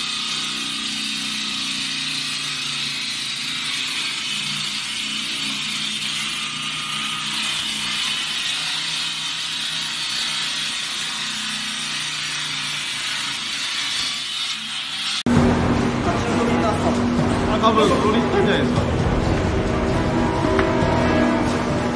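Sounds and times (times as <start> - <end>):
concrete saw grinding: 0.0 - 21.9
motor hum: 15.3 - 21.9.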